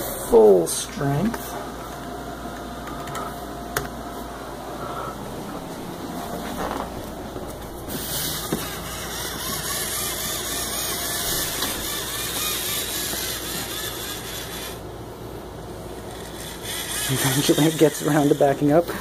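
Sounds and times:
toy robot motors whirring: 7.9s - 14.8s, 16.0s - 18.9s.

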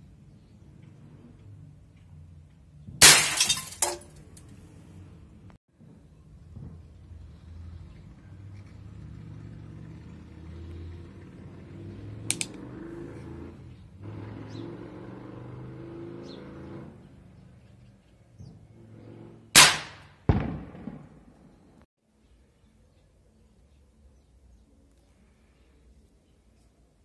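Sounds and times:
air pistol barrel clicking: 12.3s - 12.6s
air pistol shot: 19.6s - 21.2s.

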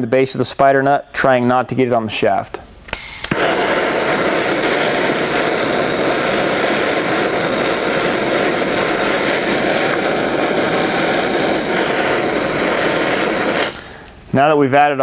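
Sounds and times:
gas torch hissing: 2.9s - 14.3s.

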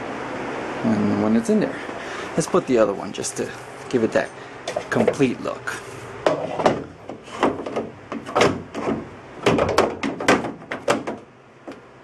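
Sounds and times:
knocks and clunks on sheet metal: 6.2s - 11.8s.

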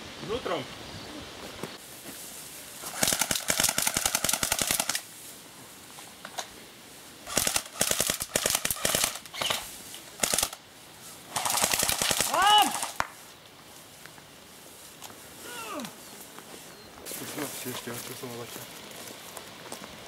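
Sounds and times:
airsoft rifles firing bursts: 2.8s - 5.1s, 7.2s - 10.6s, 11.3s - 13.1s.

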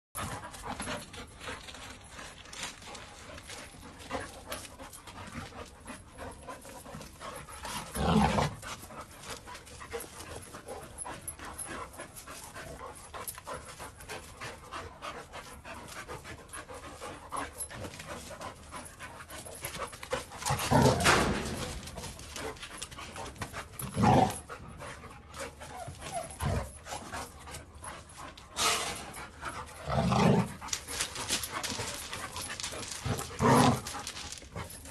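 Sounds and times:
dogs panting: 0.2s - 34.9s
dogs scuffling: 0.2s - 34.9s.

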